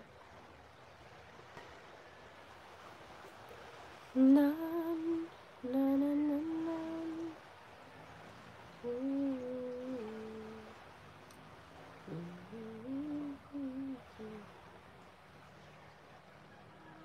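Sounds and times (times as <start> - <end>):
woman humming a slow tune: 4.2 - 7.4, 8.8 - 10.8, 12.0 - 14.6.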